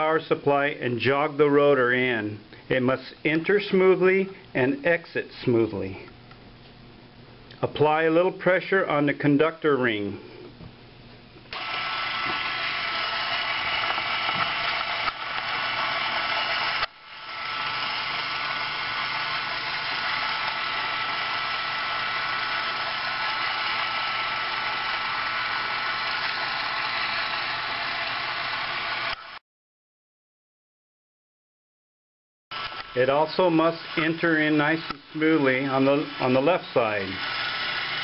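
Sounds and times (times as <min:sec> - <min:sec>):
motor and chain whirring: 0:11.5 - 0:29.4, 0:32.6 - 0:38.0.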